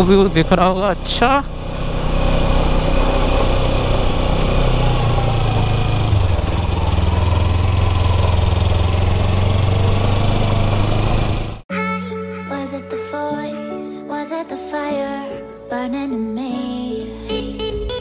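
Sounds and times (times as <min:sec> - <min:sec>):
motorcycle engine running: 0:00.0 - 0:11.6.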